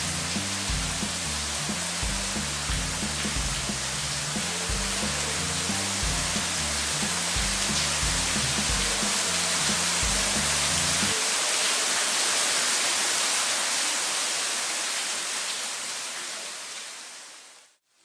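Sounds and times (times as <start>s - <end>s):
music notes: 0.0s - 11.2s
mountain river rushing: 0.0s - 17.7s.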